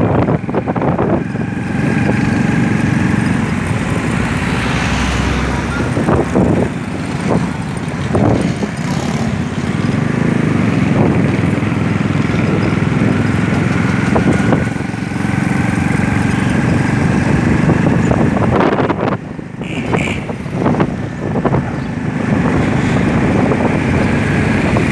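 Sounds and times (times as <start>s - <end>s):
sharp traffic sounds: 0.0s - 24.9s
small vehicle engine running: 0.0s - 24.9s.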